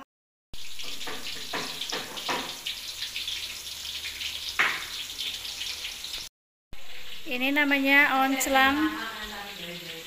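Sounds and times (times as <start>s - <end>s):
hot oil sizzling: 0.5s - 10.0s
oil popping: 0.6s - 3.2s.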